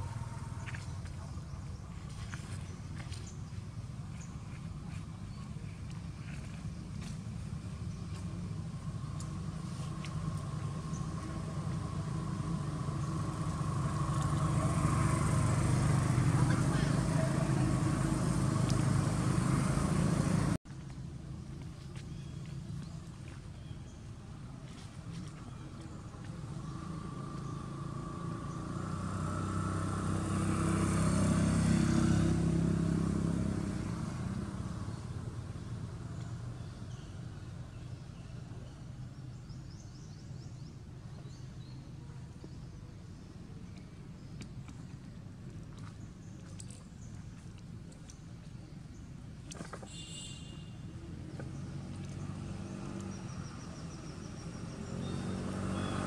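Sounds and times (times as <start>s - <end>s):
motor vehicle engine running: 0.0s - 20.6s, 24.4s - 38.0s.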